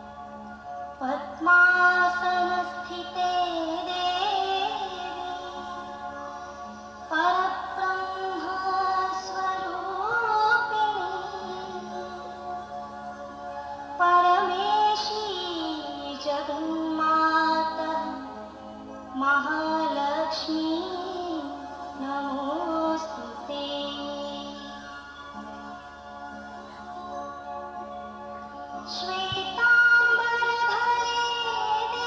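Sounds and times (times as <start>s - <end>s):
song accompaniment: 0.0s - 32.0s
woman singing: 1.0s - 6.0s, 7.1s - 12.4s, 14.0s - 18.4s, 19.1s - 24.8s, 28.8s - 32.0s.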